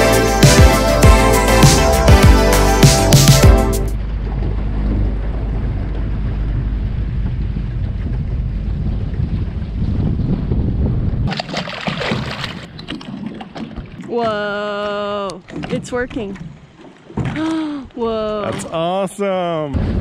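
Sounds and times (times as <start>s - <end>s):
background music: 0.0s - 4.0s
water rushing along boat hull: 0.0s - 20.0s
wind on microphone: 4.2s - 11.4s.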